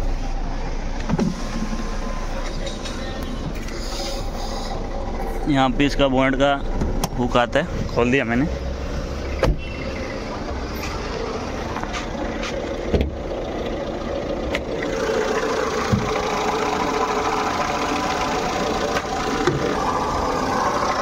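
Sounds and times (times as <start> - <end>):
diesel engine idling: 0.0 - 21.0
alternator pulley rumbling: 9.9 - 21.0.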